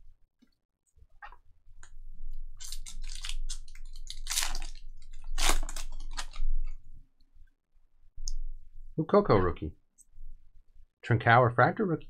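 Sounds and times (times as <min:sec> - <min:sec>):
foil wrapper tearing and crinkling: 0:02.6 - 0:06.6.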